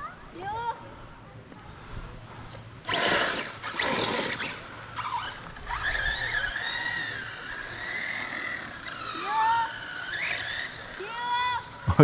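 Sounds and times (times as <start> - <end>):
electric motor whining: 2.9 - 12.0.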